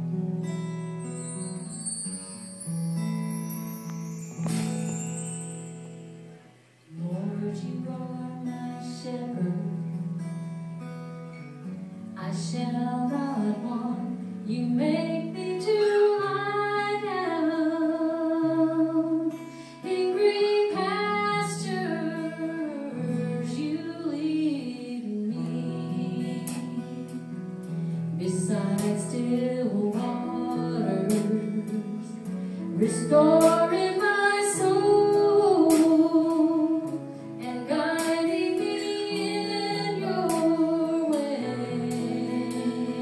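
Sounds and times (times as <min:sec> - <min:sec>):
strummed acoustic guitar: 0:00.0 - 0:43.0
drums with cymbals: 0:01.0 - 0:06.2
woman singing: 0:06.9 - 0:10.0, 0:12.2 - 0:27.6, 0:28.2 - 0:43.0.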